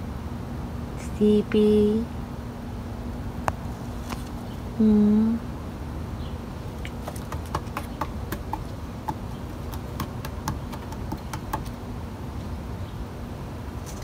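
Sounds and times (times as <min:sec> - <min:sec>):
squirrel claws clicking on wood: 0:06.8 - 0:11.8.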